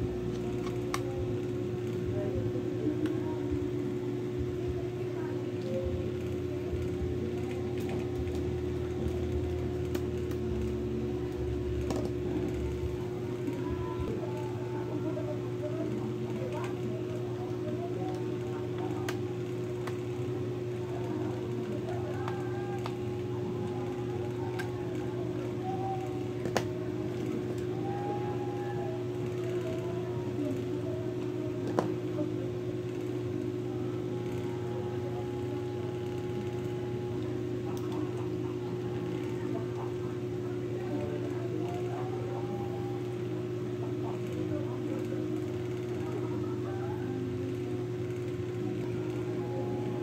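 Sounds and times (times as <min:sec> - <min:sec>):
steady hum: 0:00.0 - 0:50.0.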